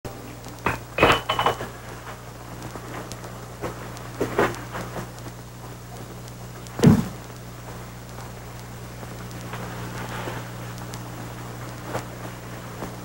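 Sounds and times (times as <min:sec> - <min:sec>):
low mains hum: 0:00.1 - 0:13.0
glass clinking: 0:00.7 - 0:01.6
solid thud: 0:06.8 - 0:07.2.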